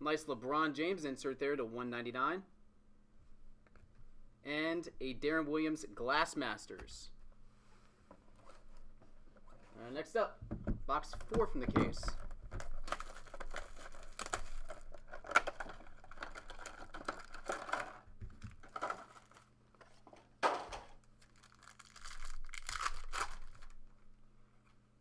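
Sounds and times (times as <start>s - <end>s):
plastic shrink-wrap crinkling and tearing: 12.2s - 19.5s, 20.8s - 23.9s
foil card pack tearing: 12.5s - 19.5s, 20.9s - 23.8s.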